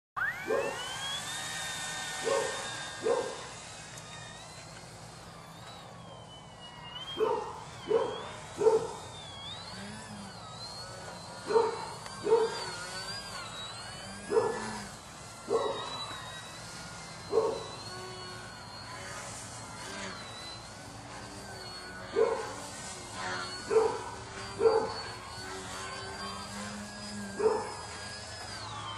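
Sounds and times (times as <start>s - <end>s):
model plane motor whine: 0.2s - 28.9s
dog barking: 2.2s - 3.4s, 7.2s - 9.0s, 11.5s - 12.6s, 14.3s - 14.7s, 15.5s - 15.8s, 22.2s - 22.5s, 23.7s - 24.0s, 24.6s - 25.0s, 27.4s - 27.7s.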